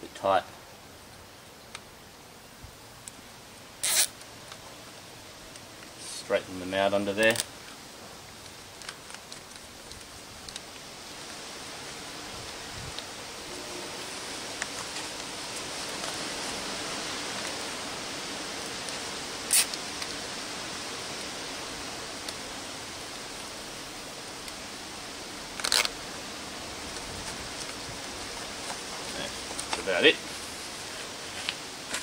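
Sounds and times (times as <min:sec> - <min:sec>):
steady background hiss: 0:00.0 - 0:32.0
cable ties zipping tight: 0:03.8 - 0:04.1, 0:19.5 - 0:19.8, 0:25.6 - 0:25.9.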